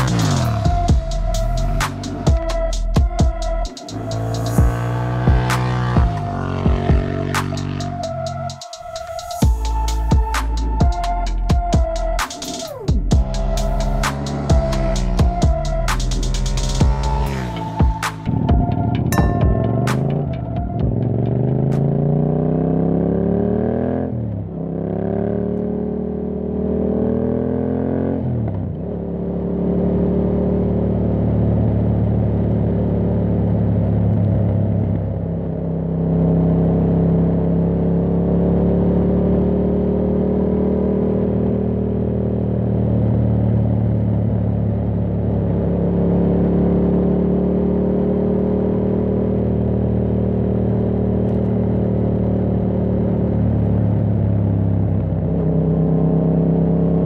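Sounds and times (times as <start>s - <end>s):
motorcycle engine revving: 0.0s - 9.8s, 12.9s - 34.0s.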